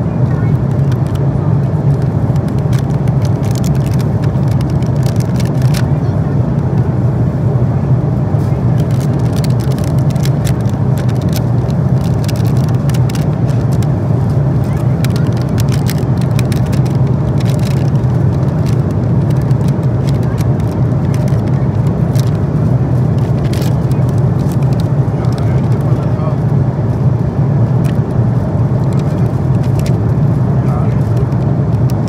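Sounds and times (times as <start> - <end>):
airliner cabin roar: 0.0 - 32.0
plastic wrapper crinkling: 2.5 - 5.8, 8.8 - 13.9, 14.6 - 22.4, 23.0 - 25.8.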